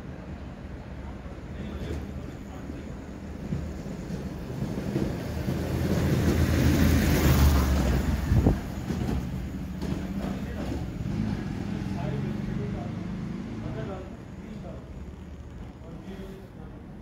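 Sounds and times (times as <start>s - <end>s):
vehicle rumbling past: 4.5s - 17.0s.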